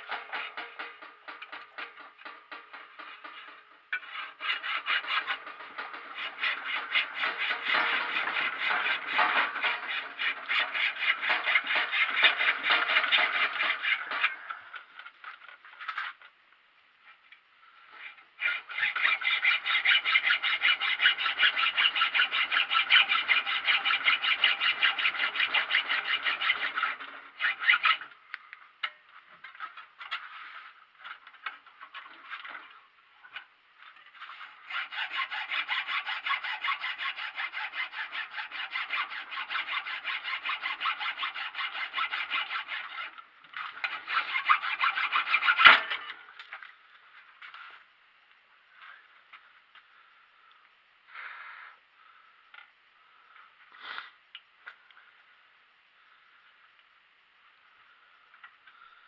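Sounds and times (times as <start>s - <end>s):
hacksaw rasping strokes: 0.0s - 14.5s, 18.0s - 28.1s, 34.2s - 46.1s.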